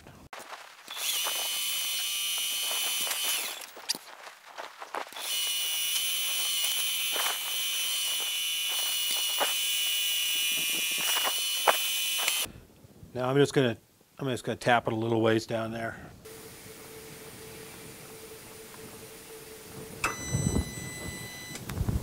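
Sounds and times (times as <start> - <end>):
drill squealing in metal: 0.9 - 3.8, 5.2 - 12.5.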